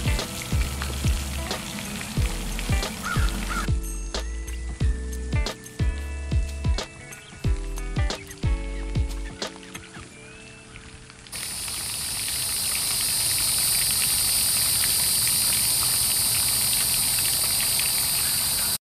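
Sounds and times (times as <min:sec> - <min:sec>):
insects buzzing: 0:00.0 - 0:03.7, 0:10.8 - 0:18.8.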